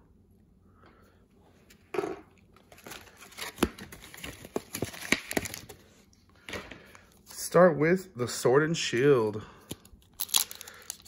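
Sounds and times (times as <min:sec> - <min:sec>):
foil and plastic packaging crinkling: 0:02.6 - 0:05.9, 0:09.7 - 0:11.0.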